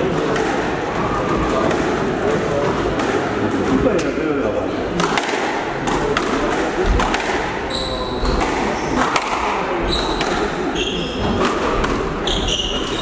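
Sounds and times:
squash ball smacking: 4.9 - 7.6, 8.2 - 10.6, 11.2 - 13.0
shoes squeaking on wooden floor: 9.8 - 11.4, 12.2 - 13.0.

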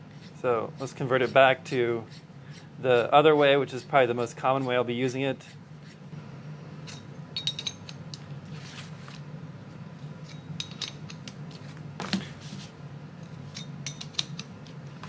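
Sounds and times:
low steady hum: 0.0 - 15.0
light metal clicks and clinks: 6.9 - 8.3.

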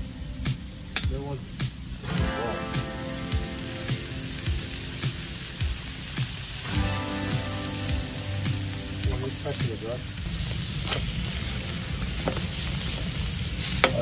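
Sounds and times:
meat sizzling on hot plate: 0.0 - 14.0.

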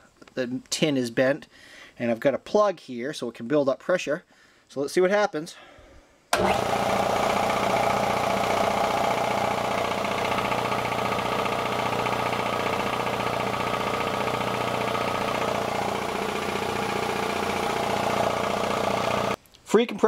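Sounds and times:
air compressor running: 6.4 - 19.4.

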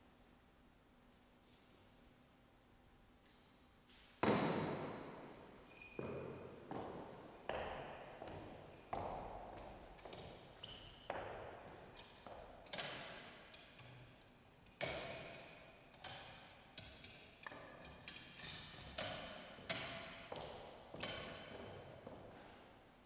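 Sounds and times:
light metallic clinks and knocks: 5.6 - 6.2.

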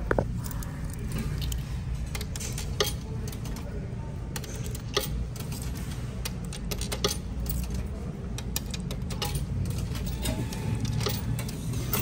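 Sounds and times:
coins clinking into a machine: 2.0 - 3.7, 4.4 - 12.0.

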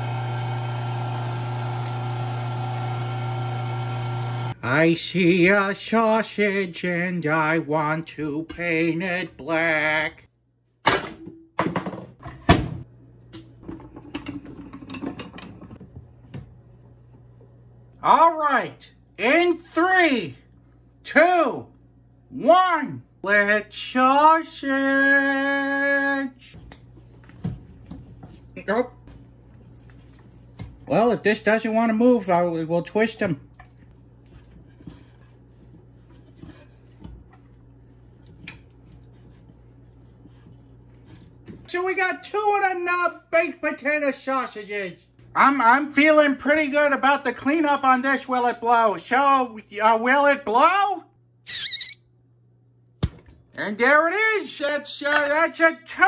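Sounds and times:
soft knocks and squishes: 26.6 - 30.9.

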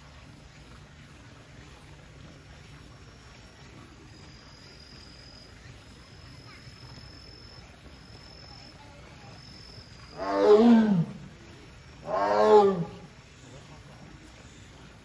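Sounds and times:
tiger moaning call: 10.1 - 11.3, 12.0 - 13.1.

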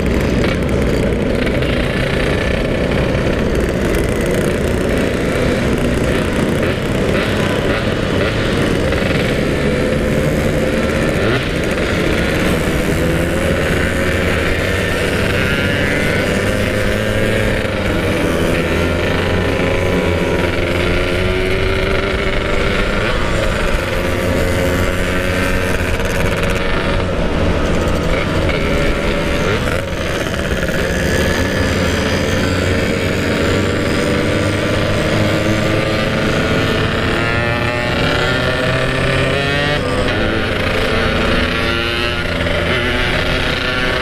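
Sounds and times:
motorcycle engines revving: 0.0 - 44.0
road and wind noise: 0.0 - 44.0.

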